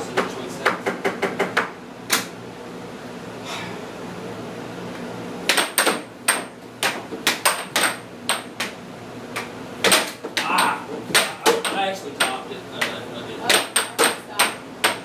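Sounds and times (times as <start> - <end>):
air hockey puck clacking: 5.5 - 15.0.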